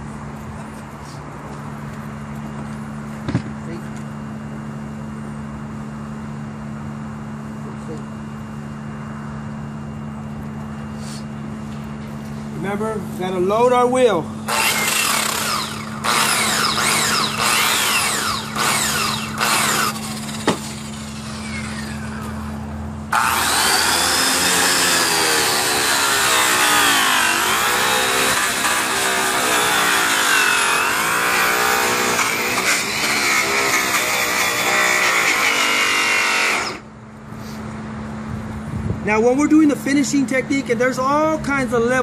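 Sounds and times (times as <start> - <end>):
buff whirring and rubbing on metal: 14.4 - 36.9
polisher spinning buff: 14.5 - 22.4, 23.1 - 36.8.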